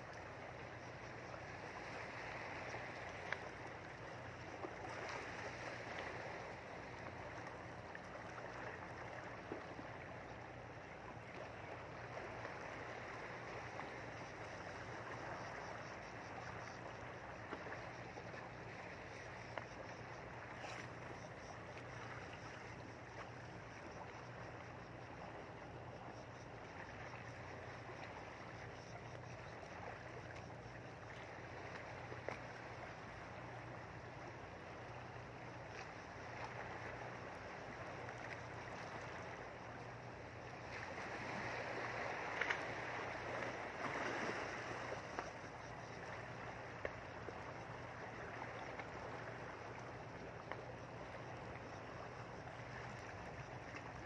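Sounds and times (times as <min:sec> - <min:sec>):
rushing water: 0:29.7 - 0:54.0.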